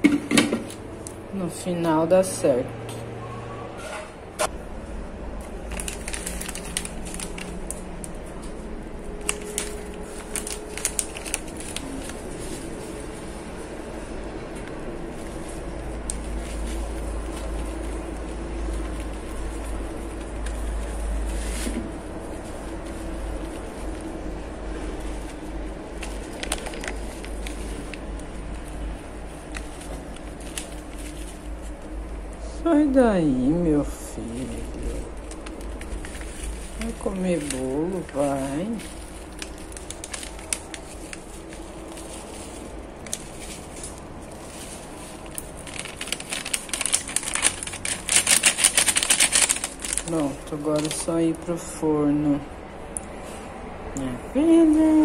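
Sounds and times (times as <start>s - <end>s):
steady low hum: 0.0s - 55.0s
plastic packet crinkling: 5.3s - 14.0s, 15.0s - 32.0s, 34.1s - 51.8s.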